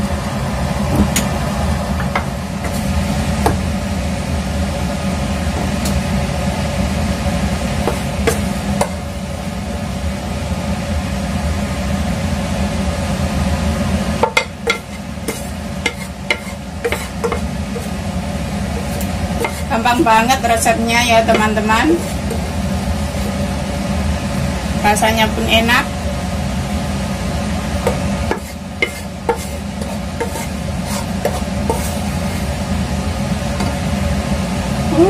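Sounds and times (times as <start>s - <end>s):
steady hum: 0.0s - 35.0s
spatula scraping frying pan: 14.6s - 18.0s, 18.7s - 23.6s, 27.8s - 32.9s.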